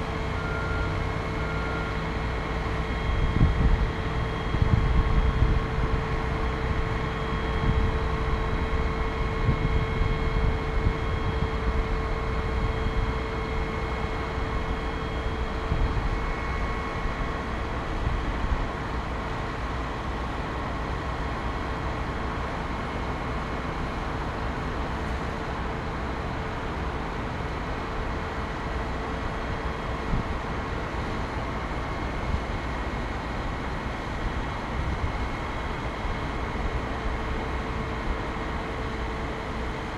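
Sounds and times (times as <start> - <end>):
wind on microphone: 3.1 - 6.1, 7.5 - 11.9.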